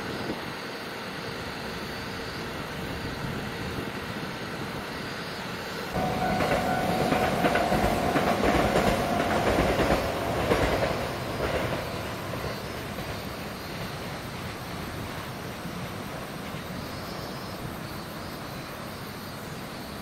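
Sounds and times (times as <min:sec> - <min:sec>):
train wheels clacking over rail joints: 0:06.0 - 0:14.1.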